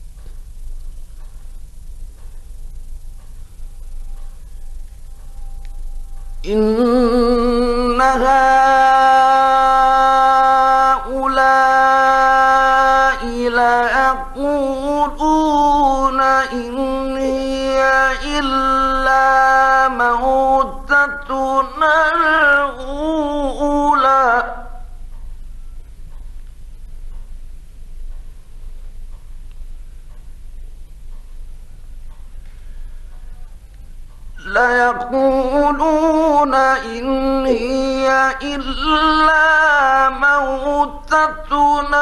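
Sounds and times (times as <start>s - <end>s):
man chanting recitation: 6.4s - 25.0s, 34.4s - 42.0s.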